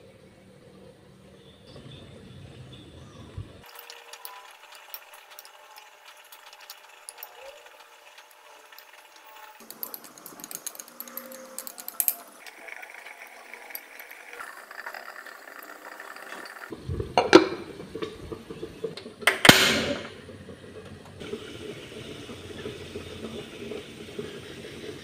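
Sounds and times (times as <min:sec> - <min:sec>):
metal tongs clinking on pot: 0:03.6 - 0:12.3.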